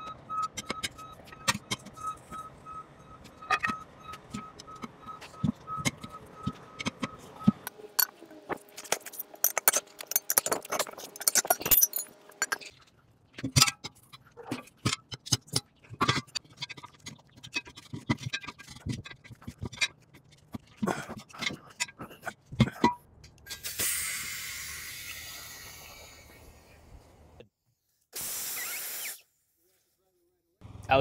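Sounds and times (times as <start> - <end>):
metal tools clinking on wheel rim: 0.4 - 12.8.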